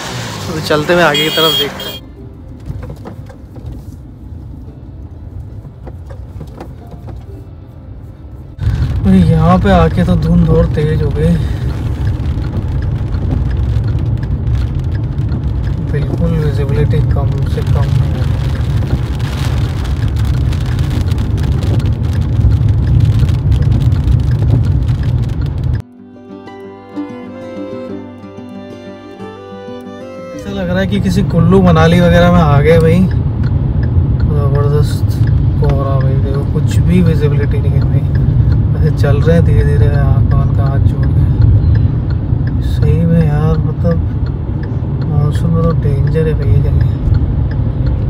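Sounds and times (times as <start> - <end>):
car rumbling on rough road: 0.0 - 25.8, 30.4 - 48.0
soft string music: 2.0 - 8.6, 25.8 - 32.7
car knocks and rattles: 2.5 - 3.9, 5.5 - 7.3
sharp ticks: 11.7 - 17.2, 32.0 - 48.0.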